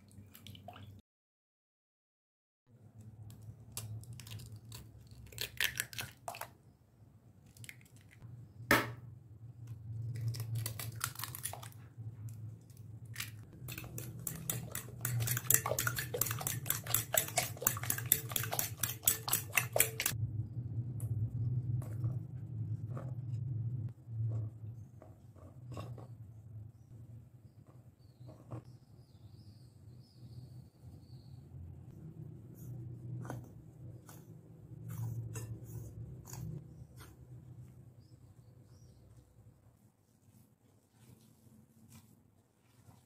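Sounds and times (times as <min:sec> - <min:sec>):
low steady hum: 0:08.2 - 0:28.4
spoon clinking against glass bowl: 0:13.7 - 0:20.2.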